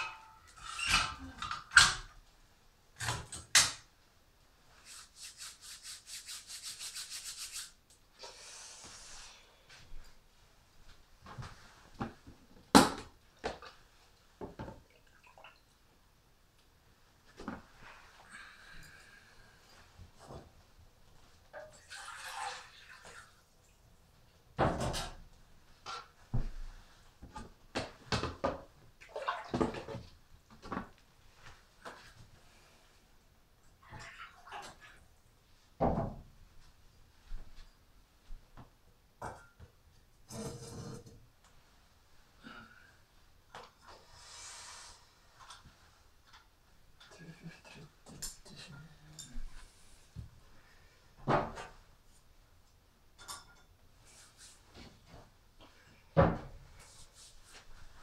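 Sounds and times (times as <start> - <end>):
quick rubbing strokes: 4.8 - 7.8.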